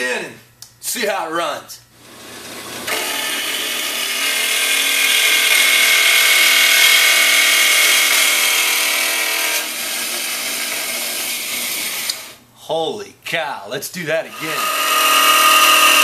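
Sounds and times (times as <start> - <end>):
bandsaw cutting steel: 2.1 - 12.4, 14.3 - 16.0.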